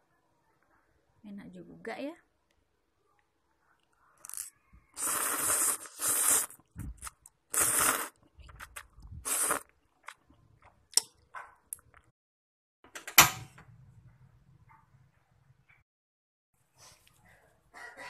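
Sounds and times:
person slurping noodles: 0:04.2 - 0:10.2.

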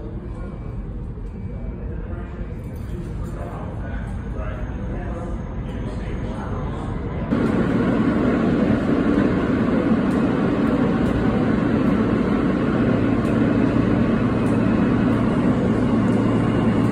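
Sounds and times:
subway train rumbling: 0:03.4 - 0:16.9
low hum: 0:04.8 - 0:16.9.

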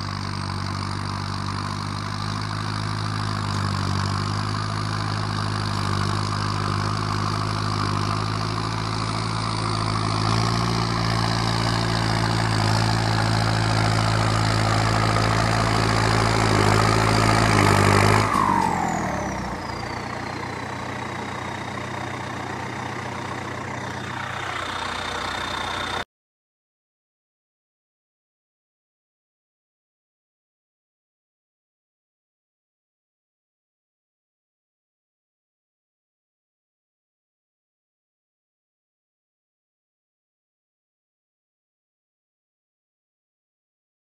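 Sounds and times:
high engine whine: 0:00.0 - 0:26.0
tractor diesel engine: 0:00.0 - 0:26.1.

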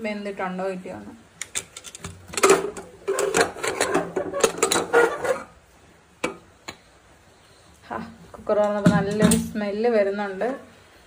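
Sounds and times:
metal lid scraping pot rim: 0:01.6 - 0:05.6.

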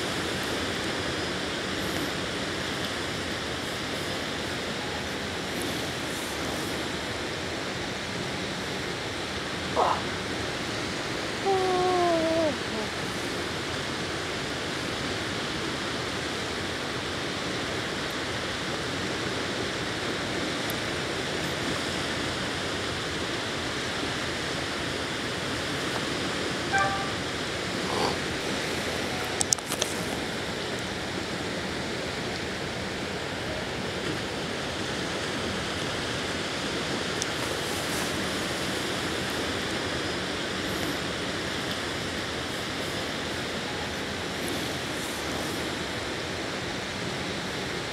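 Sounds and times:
waves lapping at shore: 0:00.0 - 0:47.9
faint call: 0:26.7 - 0:27.3.

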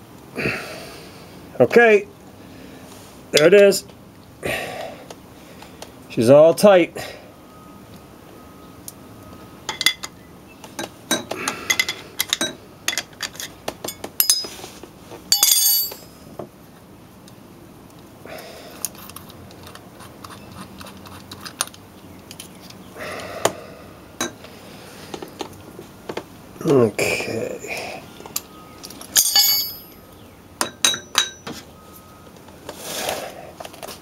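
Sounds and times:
steel tools clinking: 0:09.7 - 0:10.2, 0:10.8 - 0:14.6, 0:15.3 - 0:16.2, 0:28.3 - 0:30.0, 0:30.6 - 0:31.6.

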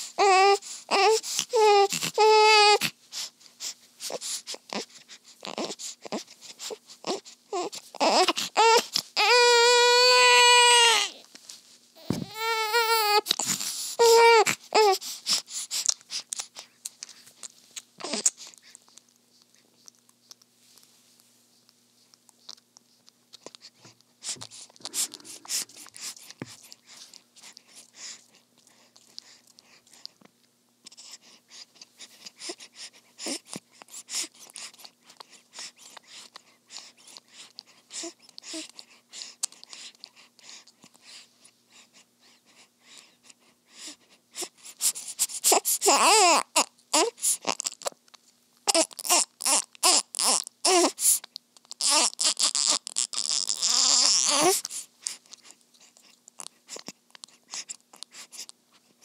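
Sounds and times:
baby whimpering cries: 0:00.0 - 0:03.0, 0:04.0 - 0:11.2, 0:12.0 - 0:15.9, 0:18.0 - 0:18.5, 0:24.3 - 0:26.2, 0:44.4 - 0:47.9, 0:48.7 - 0:55.6
baby sucking on pacifier: 0:12.0 - 0:20.5, 0:21.6 - 0:41.1, 0:44.4 - 0:48.0, 0:48.7 - 0:58.9.

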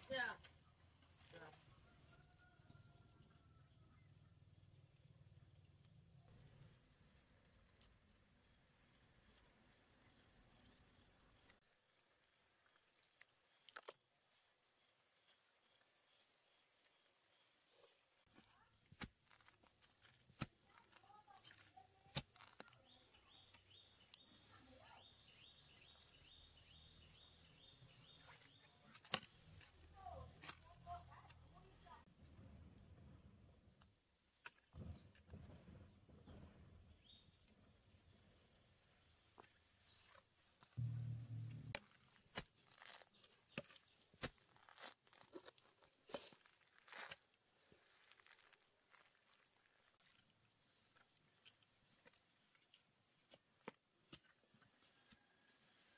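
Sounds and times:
roots tearing and crunching: 0:18.8 - 0:24.3, 0:41.7 - 0:52.2
digging tool chopping soil: 0:18.9 - 0:22.8
low hum: 0:40.8 - 0:41.8.

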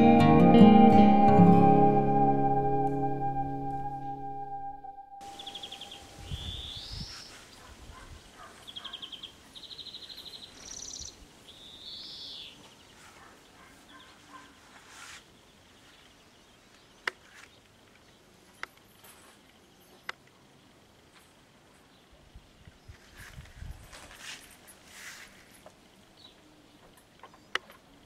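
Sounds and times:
bird trills and whistles: 0:05.2 - 0:07.3.

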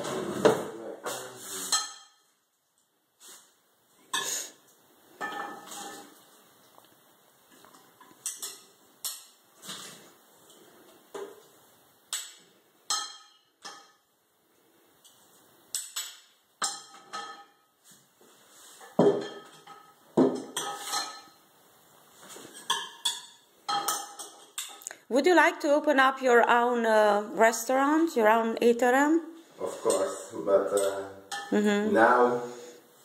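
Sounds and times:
metal utensils clinking on glass: 0:08.0 - 0:09.4, 0:19.1 - 0:21.4, 0:22.5 - 0:24.8, 0:29.9 - 0:31.5.

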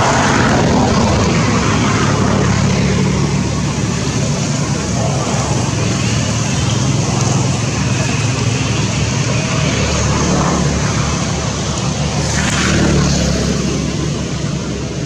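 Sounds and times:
faint voices: 0:00.0 - 0:15.0
low engine rumble: 0:00.0 - 0:15.0.

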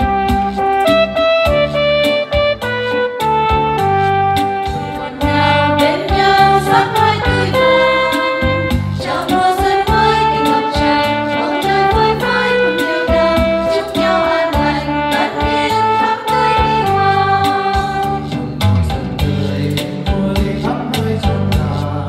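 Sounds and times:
electronic keyboard: 0:00.0 - 0:20.1
choir singing a hymn: 0:04.8 - 0:18.3.

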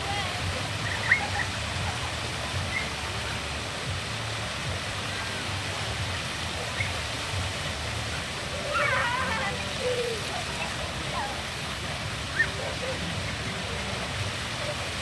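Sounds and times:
faint children's voices: 0:00.0 - 0:04.1, 0:08.1 - 0:15.0
water rushing over rocks: 0:00.0 - 0:15.0.

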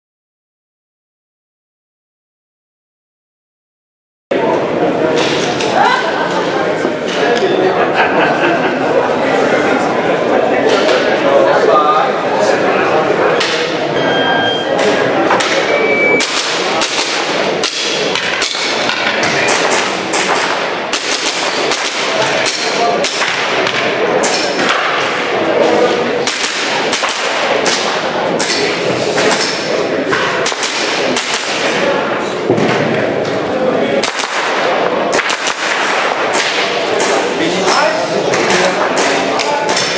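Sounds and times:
crowd chatter in a hall: 0:04.3 - 0:39.9
airsoft pistol shots: 0:16.2 - 0:18.9, 0:19.5 - 0:23.6, 0:26.2 - 0:28.0, 0:34.0 - 0:37.2.

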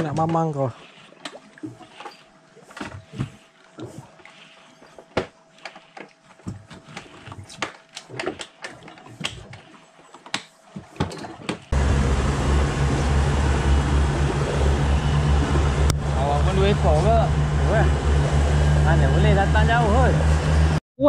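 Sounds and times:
boat engine running: 0:11.7 - 0:20.8.

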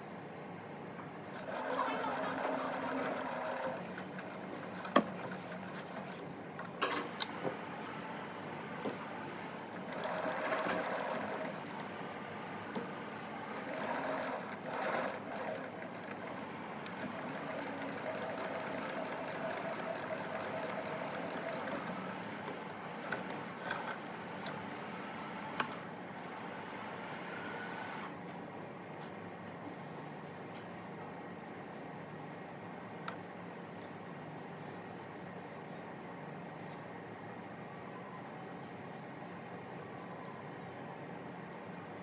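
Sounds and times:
electric sewing machine stitching: 0:01.4 - 0:06.2, 0:09.7 - 0:11.9, 0:13.1 - 0:24.7.

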